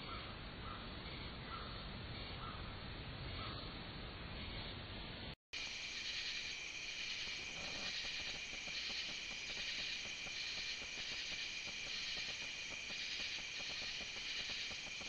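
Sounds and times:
insect chorus trilling: 5.6s - 15.0s.

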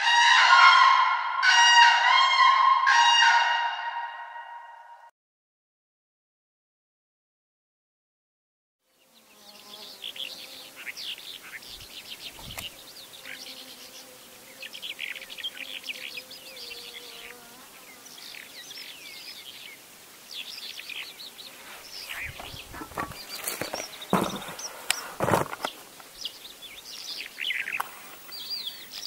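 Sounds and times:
lark singing: 21.9s - 24.8s.

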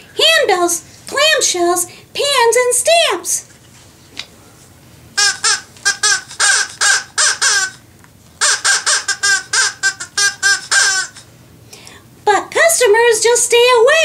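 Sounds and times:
rapid parrot squawks: 5.2s - 7.8s, 8.4s - 11.3s.

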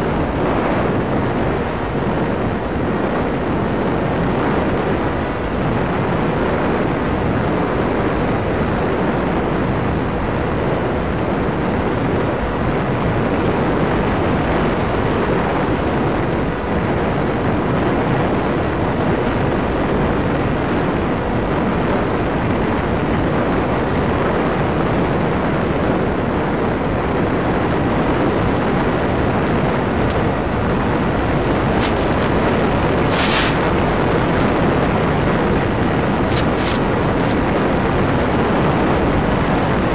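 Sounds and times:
wind rushing: 29.9s - 38.0s
electric motor noise: 30.0s - 35.1s, 35.9s - 37.5s
brief high crackles: 31.8s - 32.4s, 33.0s - 34.6s, 36.2s - 37.4s.

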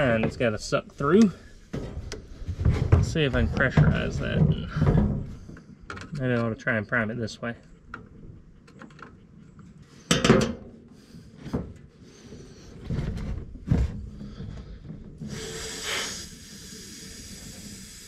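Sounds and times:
knocks and clunks of parts: 1.2s - 6.3s, 10.1s - 10.8s, 11.4s - 15.2s
steady air hiss: 15.2s - 18.0s.

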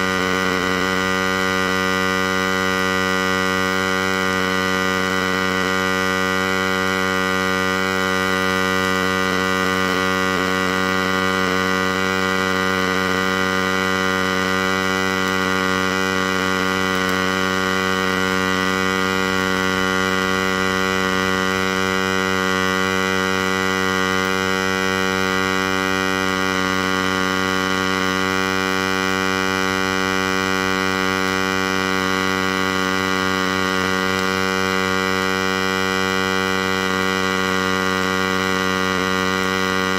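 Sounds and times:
welding arc buzzing: 0.0s - 39.9s.

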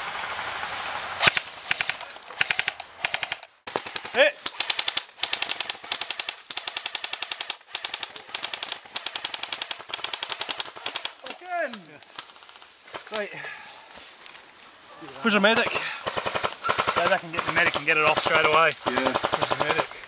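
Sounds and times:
airsoft guns firing bursts: 1.2s - 11.4s, 15.4s - 20.0s.

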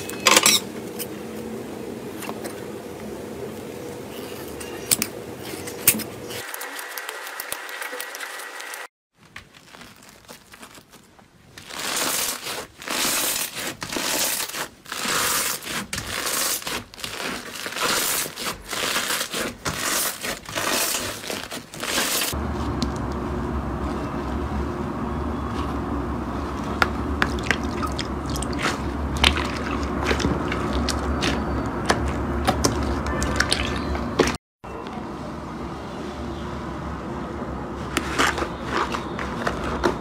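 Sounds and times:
slime with foam beads crackling: 9.2s - 22.4s.

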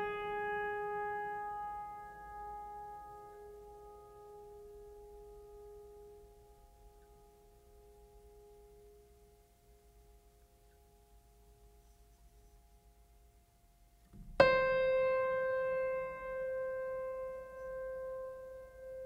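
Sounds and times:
piano music: 0.0s - 6.7s, 14.3s - 19.0s.

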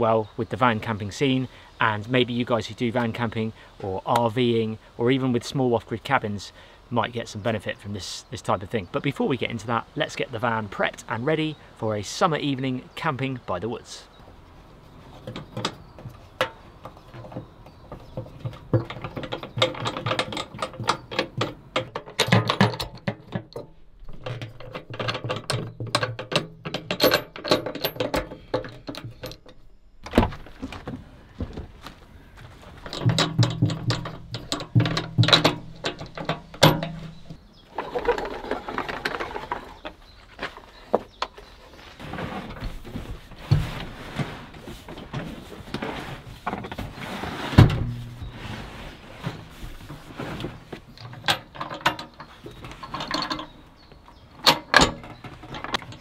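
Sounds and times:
gear clicking and rattling: 15.2s - 29.7s, 32.7s - 40.0s.

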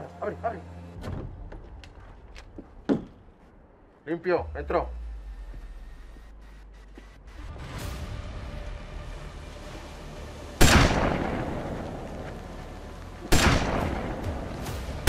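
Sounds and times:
gunshots echoing: 10.6s - 12.3s, 13.2s - 15.0s.

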